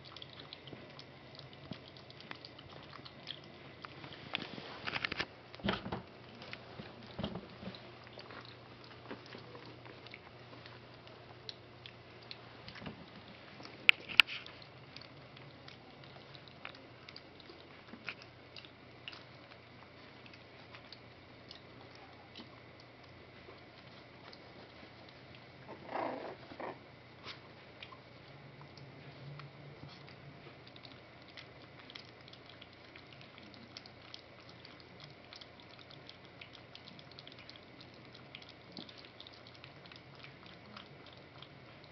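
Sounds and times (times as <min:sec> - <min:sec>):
small clicks and ticks: 0:00.0 - 0:05.6, 0:07.3 - 0:25.5, 0:27.8 - 0:41.9
puppies shuffling on blankets: 0:03.5 - 0:11.4, 0:21.7 - 0:30.6.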